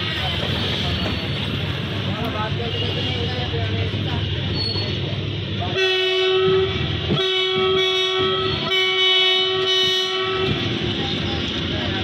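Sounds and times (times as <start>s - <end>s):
freight train rumbling past: 0.0s - 12.0s
train horn blasts: 5.7s - 10.8s.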